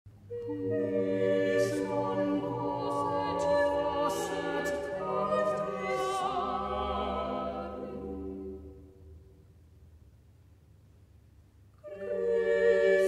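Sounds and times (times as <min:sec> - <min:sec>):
unaccompanied choir singing: 0:00.3 - 0:08.9, 0:11.8 - 0:13.0.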